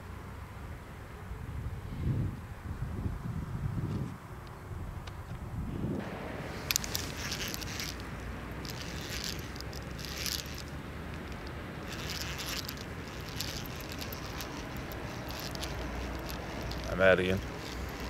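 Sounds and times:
wind rumbling on microphone: 1.3s - 18.0s
dry reeds rustling: 6.0s - 18.0s.

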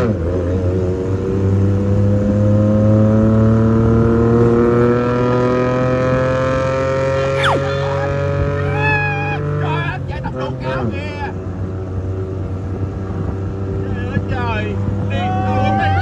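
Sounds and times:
engine running: 0.0s - 16.0s.

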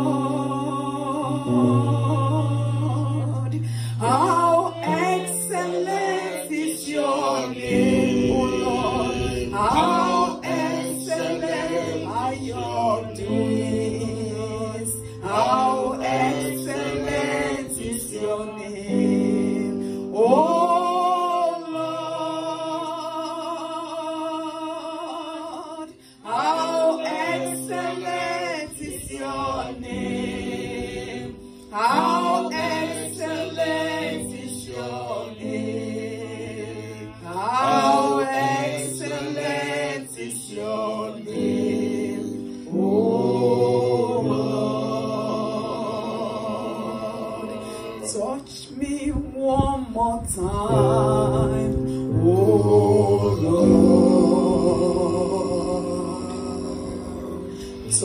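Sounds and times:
woman singing into microphone: 0.0s - 11.0s.

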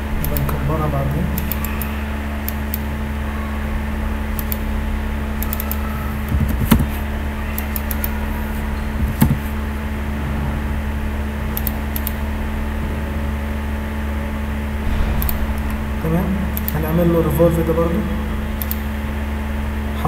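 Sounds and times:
low hum: 0.0s - 20.0s
mouse and keyboard clicks: 5.4s - 7.0s, 7.6s - 9.5s
loud knocks: 14.7s - 18.6s.

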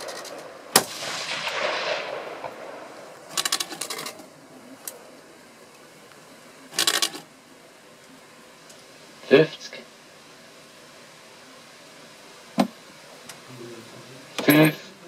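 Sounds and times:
rifle shot reverberation: 0.0s - 4.2s
rapid mechanical clicking: 3.3s - 4.2s, 6.7s - 7.2s.

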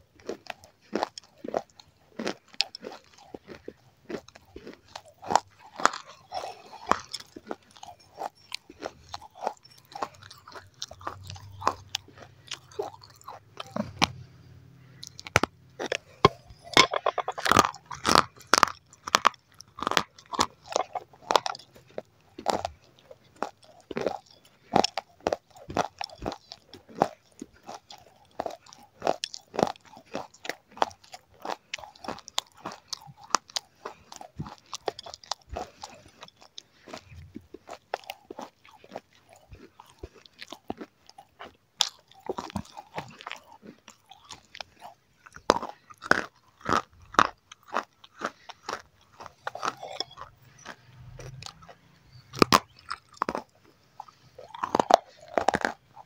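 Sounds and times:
crunchy chewing: 0.0s - 56.0s.

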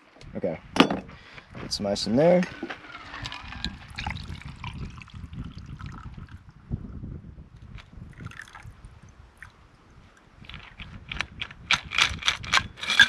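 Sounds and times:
liquid trickling into cup: 3.2s - 6.4s, 8.1s - 8.8s.

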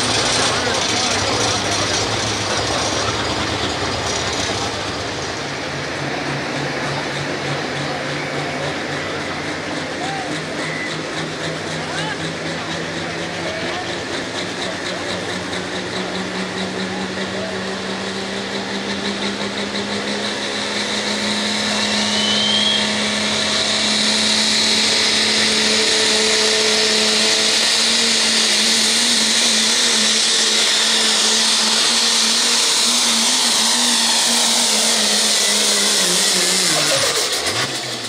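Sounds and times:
diesel truck engine at full throttle: 0.0s - 38.0s
high turbocharger whistle: 8.2s - 11.6s, 16.2s - 38.0s.

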